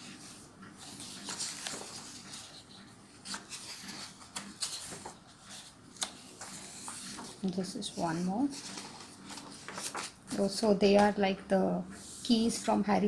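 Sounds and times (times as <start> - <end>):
paper pages rustling: 0.0 - 11.2
sharp paper crackles: 0.9 - 7.4, 8.4 - 11.1.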